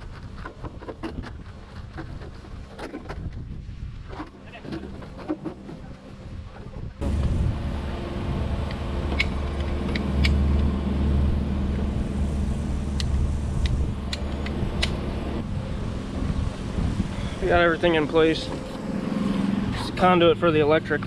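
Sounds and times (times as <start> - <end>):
engine idling: 7.0 - 21.0
pipe cutter clicking: 9.1 - 10.4.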